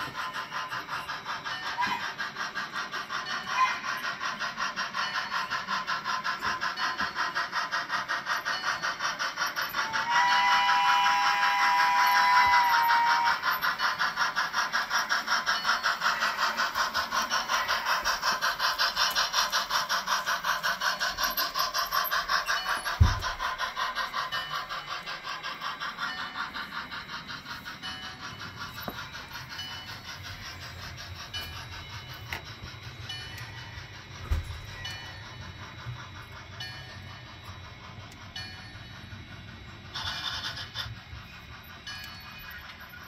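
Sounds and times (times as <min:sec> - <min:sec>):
steam locomotive chuffing: 0:00.0 - 0:43.0
two-tone steam whistle: 0:09.7 - 0:13.8.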